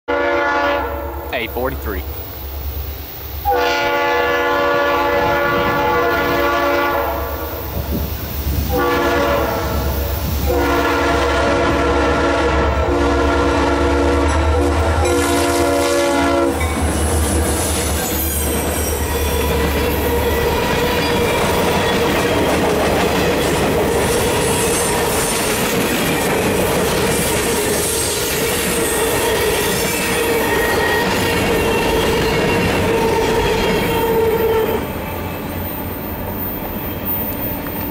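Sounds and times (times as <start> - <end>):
locomotive air horn blasts: 0.1 - 1.3, 3.4 - 7.6, 8.7 - 16.6
train wheels clickety-clack: 16.6 - 34.1.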